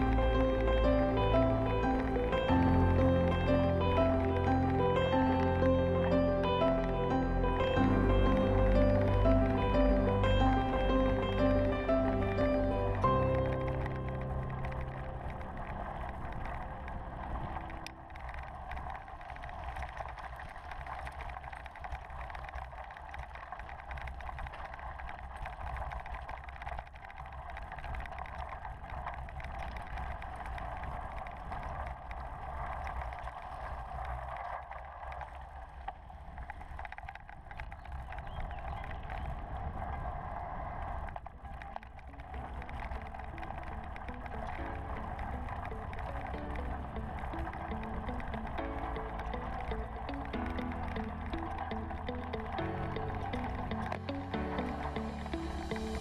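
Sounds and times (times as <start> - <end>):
background music: 0.0 - 16.4, 42.1 - 56.0
bike tyres rumbling on gravel: 0.0 - 56.0
wind noise on microphone: 0.0 - 56.0.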